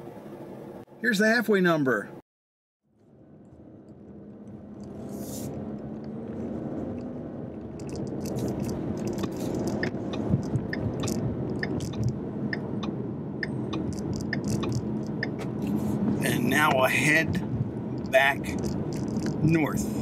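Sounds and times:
car engine running: 0:02.9 - 0:20.0
tyre noise on wet road: 0:18.0 - 0:20.0.

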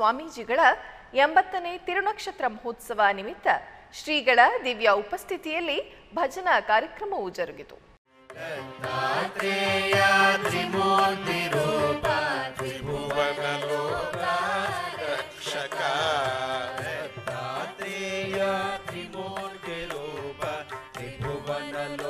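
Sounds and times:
light percussion: 0:08.2 - 0:22.0.

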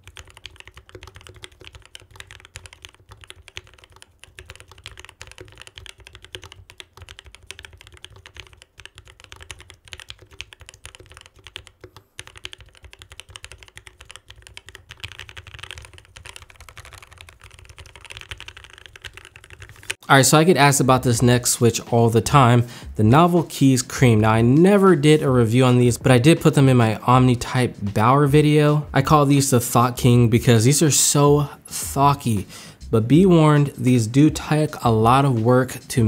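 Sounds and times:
mechanical keyboard typing: 0:00.0 - 0:20.0.

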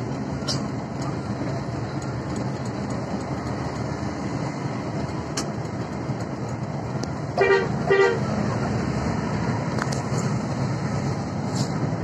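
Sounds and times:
bus engine and road noise: 0:00.0 - 0:12.0
horn blast: 0:07.4 - 0:08.3.

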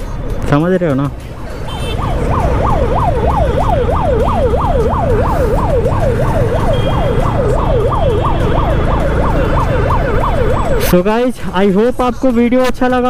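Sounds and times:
traffic rumble: 0:00.0 - 0:13.0
wind: 0:00.0 - 0:13.0
siren sweeping up and down: 0:02.0 - 0:11.1.

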